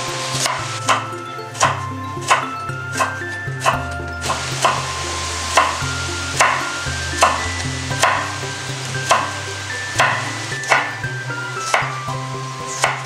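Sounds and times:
music with held notes: 0:00.0 - 0:13.0
knife chopping on wooden board: 0:08.0 - 0:08.3, 0:10.0 - 0:11.0.

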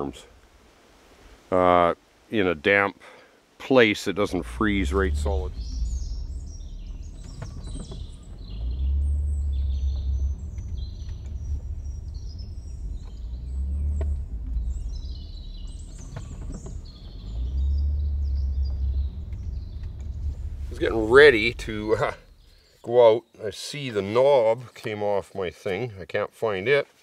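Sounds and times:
small birds chirping: 0:04.0 - 0:25.8
low rumble: 0:04.2 - 0:22.8.

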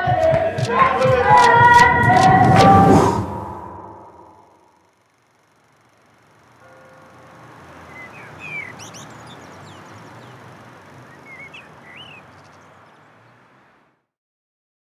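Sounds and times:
city hum and hiss: 0:00.7 - 0:14.0
bird chirping: 0:03.7 - 0:13.8.

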